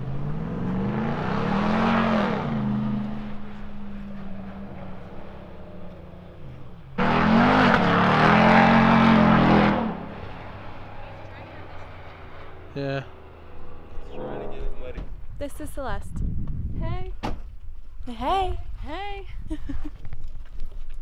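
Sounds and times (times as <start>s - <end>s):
loud engine: 0.0s - 15.0s
truck engines driving past: 0.0s - 15.8s.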